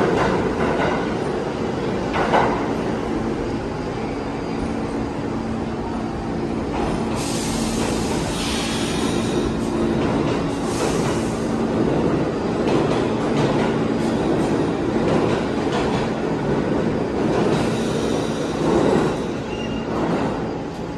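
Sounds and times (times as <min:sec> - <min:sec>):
clicks of train wheels: 0:00.0 - 0:01.2, 0:06.7 - 0:20.9
subway trains accelerating: 0:00.0 - 0:20.9.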